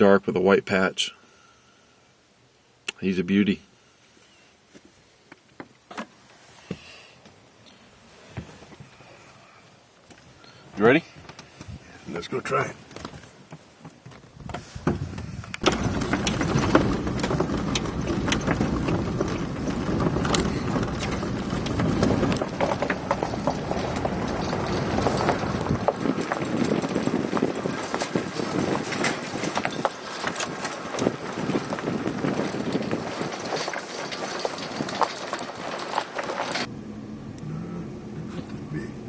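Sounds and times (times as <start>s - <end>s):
cab knocks and rattles: 12.8s - 36.7s
truck low rumble: 14.6s - 39.0s
tyres crunching on gravel: 15.6s - 36.7s.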